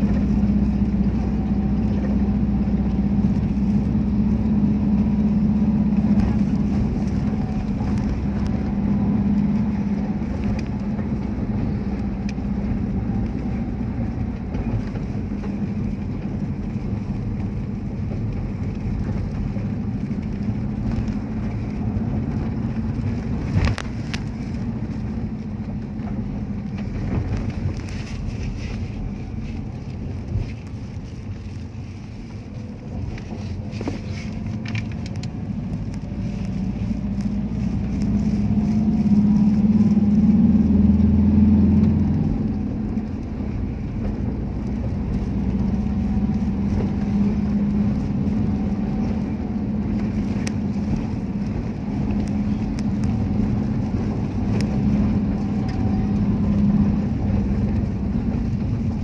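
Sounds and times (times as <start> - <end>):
vehicle engine and tyre hum: 0.0 - 59.0.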